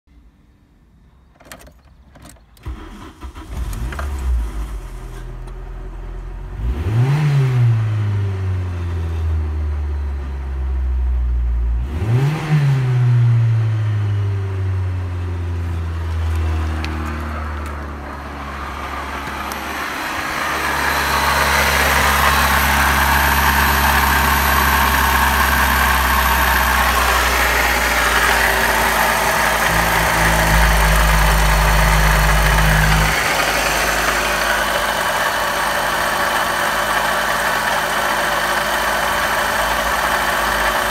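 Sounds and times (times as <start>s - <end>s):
car engine starting and revving: 2.6s - 40.9s
car engine idling: 14.8s - 40.9s.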